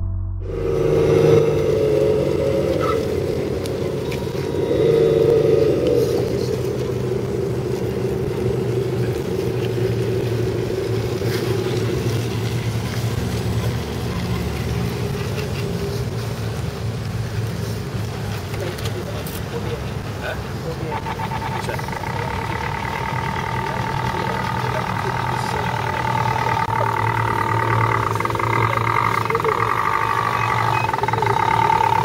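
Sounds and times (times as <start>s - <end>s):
toy truck motor whirring: 21.0s - 32.0s.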